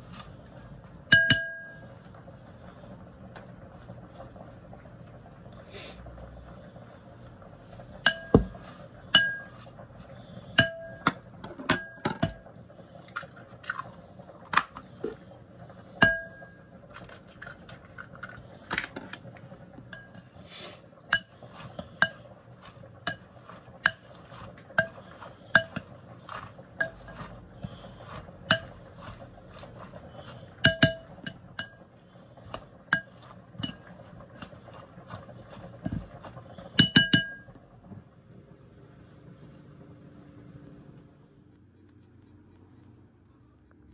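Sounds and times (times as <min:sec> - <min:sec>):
metal spoon clinking glass bowl: 0:01.1 - 0:01.8.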